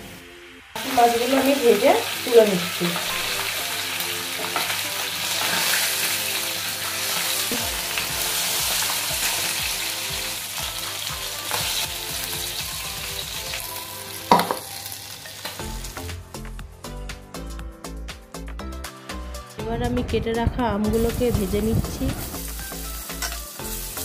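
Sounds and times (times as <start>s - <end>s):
fish sizzling in hot oil: 0.2s - 16.2s, 21.0s - 24.0s.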